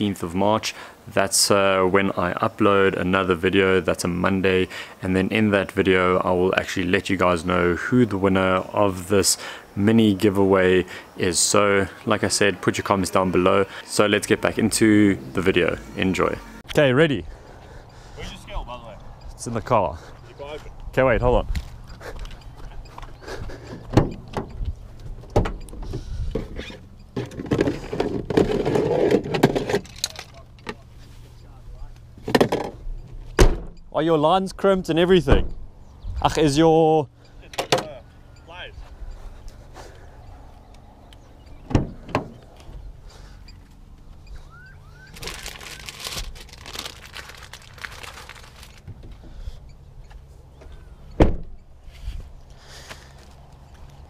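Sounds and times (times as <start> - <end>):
car door opening with clicks: 23.7 - 28.4, 37.5 - 38.0, 41.5 - 42.8, 50.0 - 51.6
car door slamming: 32.3 - 33.8, 41.6 - 42.4, 51.2 - 51.6
rustling items in car: 41.8 - 49.4.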